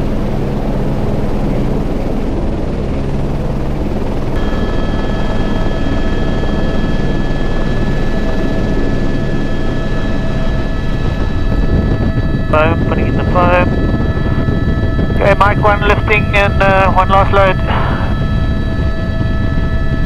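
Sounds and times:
helicopter rotor and engine: 0.0s - 20.0s
high whine tones: 4.3s - 20.0s.

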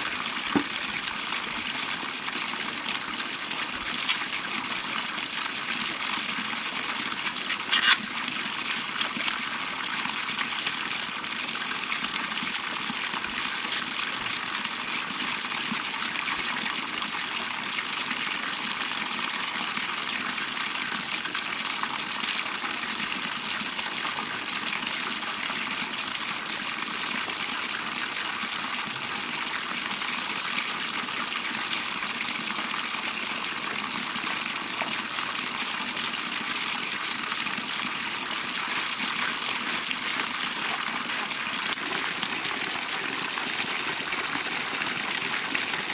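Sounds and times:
water pouring into plastic bucket: 0.0s - 14.9s, 37.4s - 45.9s.

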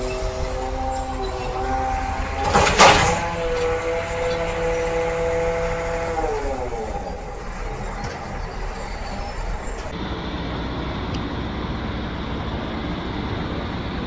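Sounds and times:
diesel engine running: 0.0s - 14.0s
loud crash of crane: 2.0s - 3.8s.

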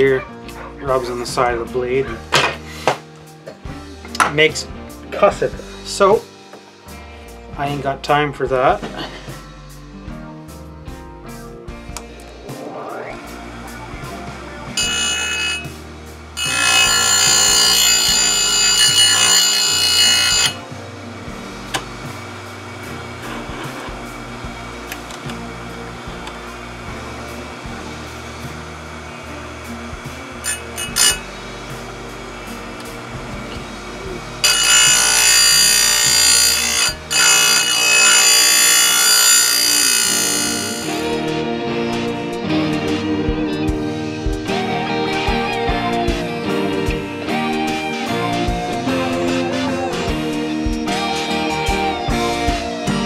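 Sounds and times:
chain grinder whining: 14.8s - 15.8s, 16.4s - 20.6s, 21.7s - 41.2s
chain grinder wheel whining: 16.4s - 20.6s, 30.4s - 31.4s, 34.3s - 41.0s.

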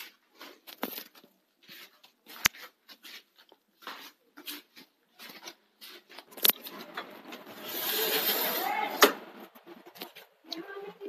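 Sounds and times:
footsteps shuffling on hard floor: 0.0s - 7.4s.

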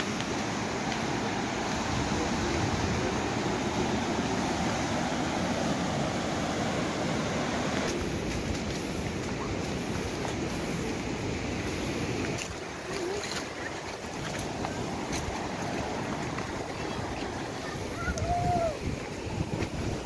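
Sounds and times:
ocean surf breaking: 0.0s - 20.0s
wind buffeting microphone: 1.2s - 6.3s, 7.9s - 20.0s.

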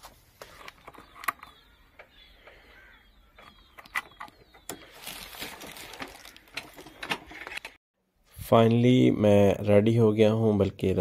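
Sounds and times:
small birds chirping: 0.3s - 7.7s
rustling: 4.7s - 7.8s.

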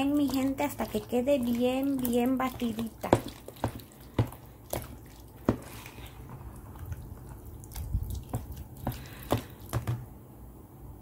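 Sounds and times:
wet squelching of beaten mixture: 0.0s - 10.1s.

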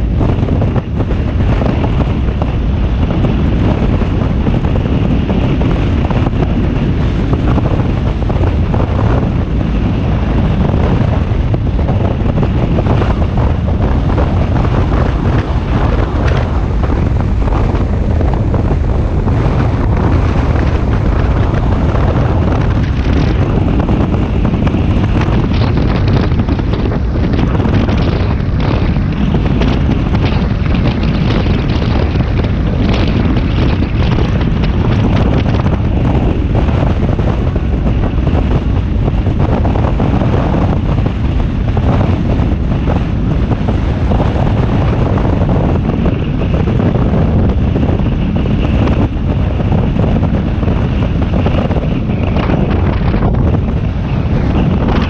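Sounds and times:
road noise: 0.0s - 55.0s
wind buffeting microphone: 0.0s - 55.0s.

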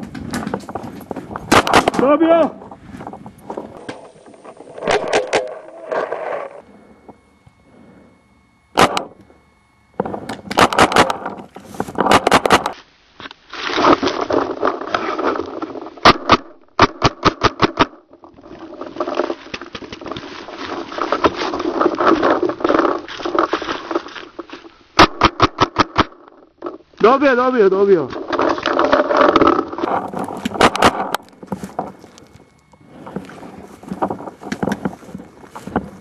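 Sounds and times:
paintball markers firing: 8.8s - 9.1s, 10.0s - 11.4s, 12.0s - 12.8s.

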